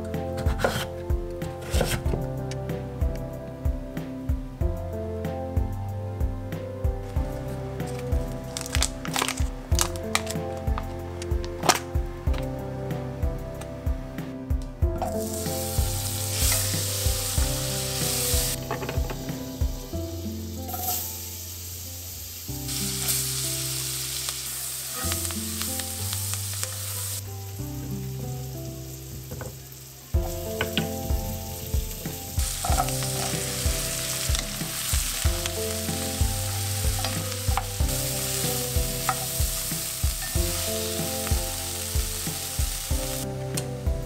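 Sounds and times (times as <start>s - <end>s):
soft background music: 0.0s - 44.0s
wooden spoon stirring: 0.4s - 1.0s, 32.1s - 41.4s
vegetables sizzling in butter: 15.0s - 43.2s.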